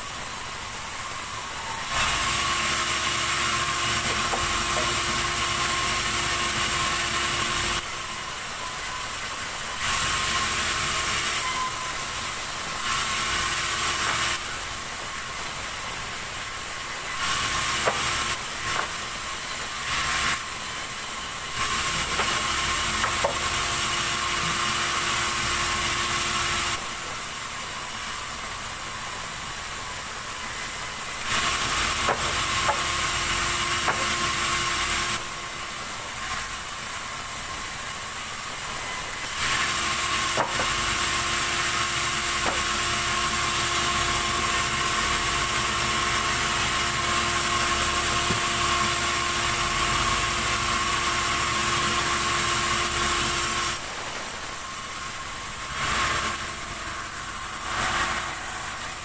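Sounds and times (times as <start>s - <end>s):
sawmill saw cutting wood: 0.8s - 59.0s
timber knocks: 40.4s - 40.8s.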